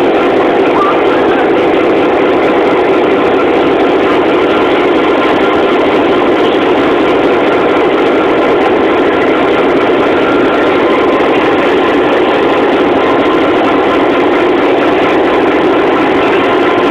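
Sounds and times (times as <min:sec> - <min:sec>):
diesel locomotive engine running: 0:00.0 - 0:16.9.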